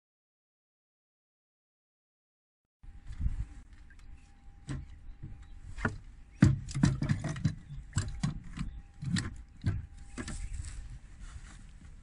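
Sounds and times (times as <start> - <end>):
faint steady high tone: 2.8 - 5.8, 7.8 - 11.2
knocks in wooden boat: 4.7 - 10.3.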